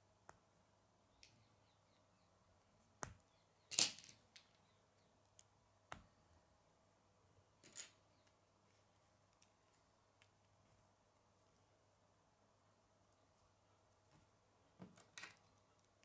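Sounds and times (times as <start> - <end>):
plastic pieces clicking together: 3.7 - 4.6.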